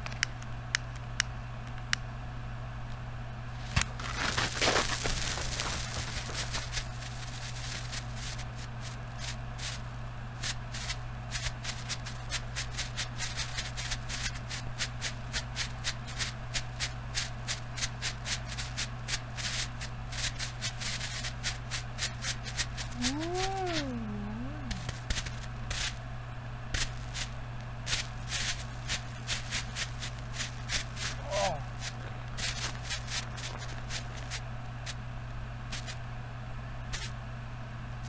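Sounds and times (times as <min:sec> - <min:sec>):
firework popping and crackling: 0:03.6 - 0:26.0, 0:26.8 - 0:34.4, 0:35.7 - 0:36.0
wavering pitched call: 0:23.0 - 0:24.9.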